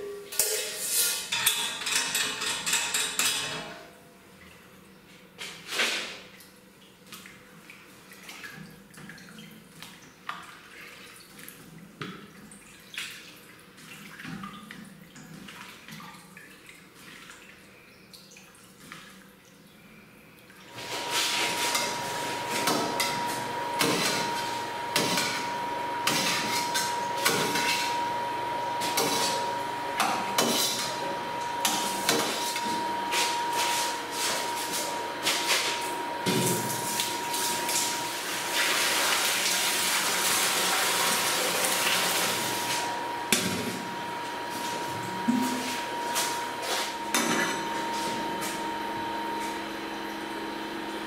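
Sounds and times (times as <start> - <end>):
metal tool scraping steel vat: 0.4 - 2.7, 21.3 - 28.0, 28.8 - 29.6.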